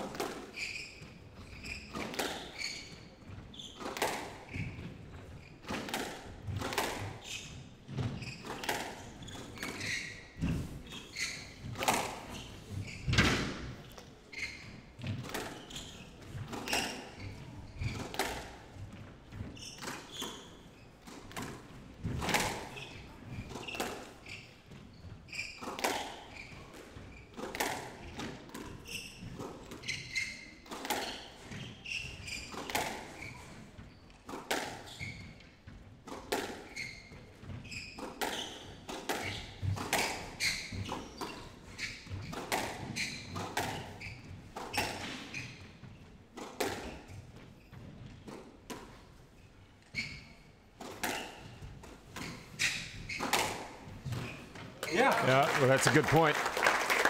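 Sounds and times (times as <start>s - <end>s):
squash ball hitting racquets and walls: 0.0s - 56.3s.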